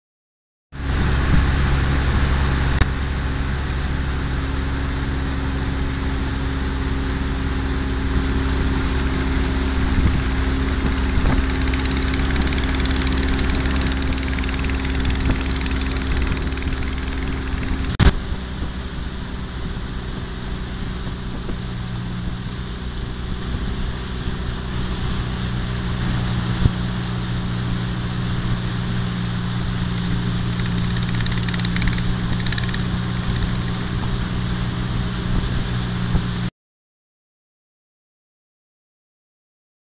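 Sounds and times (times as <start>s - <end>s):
boat engine running: 0.8s - 26.1s, 28.1s - 36.4s
wind: 0.8s - 36.5s
sharp click: 10.0s - 18.1s, 29.9s - 33.9s.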